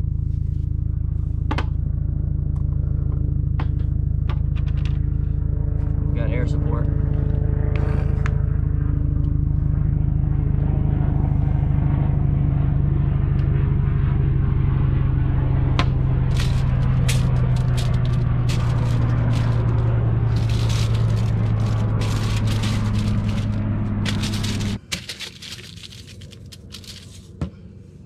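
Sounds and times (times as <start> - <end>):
engine droning: 0.0 - 28.0
foil crinkling: 16.3 - 27.4.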